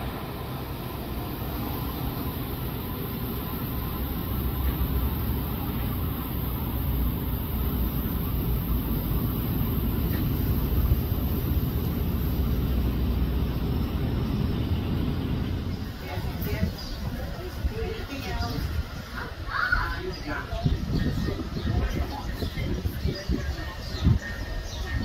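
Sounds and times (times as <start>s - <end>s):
electric train rumbling: 0.0s - 25.0s.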